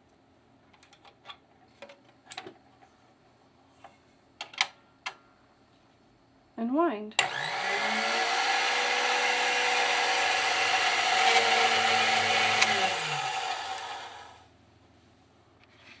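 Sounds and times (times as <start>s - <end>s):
bobbin winder click: 7.2s - 7.9s, 10.4s - 14.2s
bobbin winder whirring: 7.2s - 14.4s.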